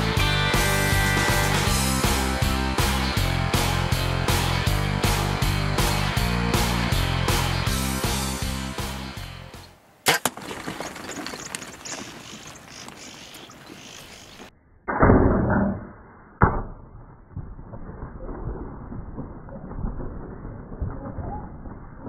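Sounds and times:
background music: 0.0 - 9.7.

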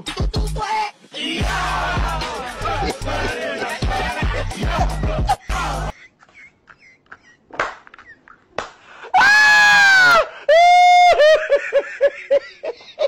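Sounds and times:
person laughing: 2.8 - 8.5, 10.5 - 13.0
person screaming: 9.1 - 11.3.

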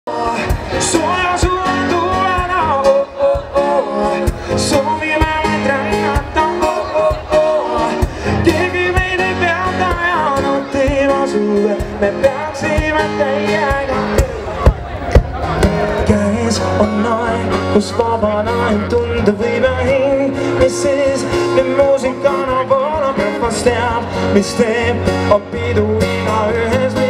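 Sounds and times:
man singing into microphone: 0.1 - 14.7, 15.5 - 27.0
steady drum beat: 0.1 - 17.1
acoustic guitar: 0.1 - 27.0.

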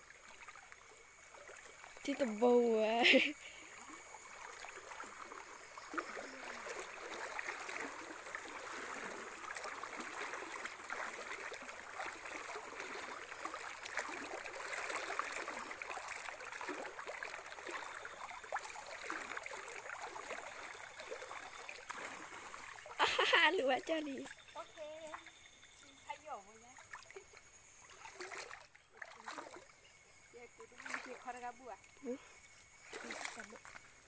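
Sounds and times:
wading through water: 0.0 - 34.0.

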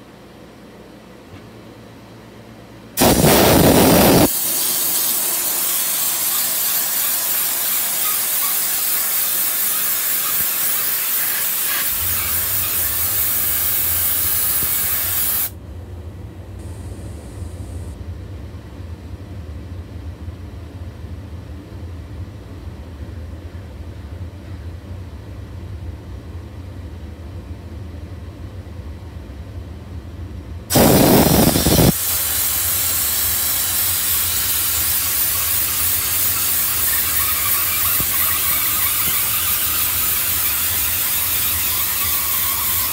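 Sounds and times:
steam jet hissing: 3.0 - 15.5, 30.7 - 42.9.

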